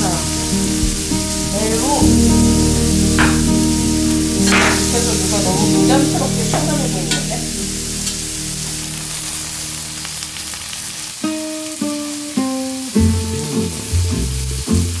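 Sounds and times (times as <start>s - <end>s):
steak sizzling on griddle: 0.0s - 15.0s.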